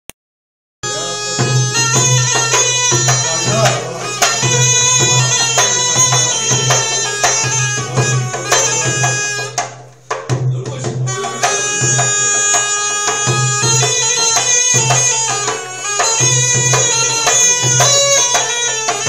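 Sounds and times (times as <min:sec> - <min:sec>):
goblet drum beating: 0:00.8 - 0:19.0
reedy wind instrument playing: 0:00.8 - 0:19.0.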